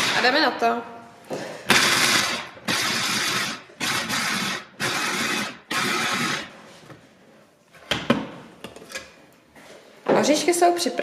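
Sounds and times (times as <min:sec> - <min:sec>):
food chopper grinding nuts: 0:00.0 - 0:00.4, 0:01.7 - 0:06.6.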